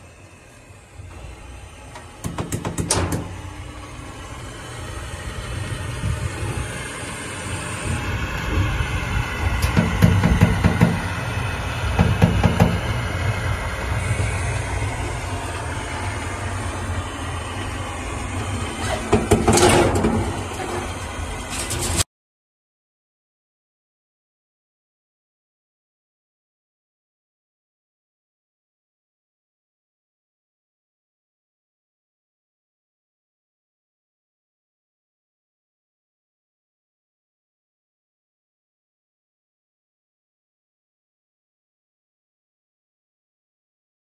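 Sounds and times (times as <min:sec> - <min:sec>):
welding arc hiss and hum: 0:00.0 - 0:22.0.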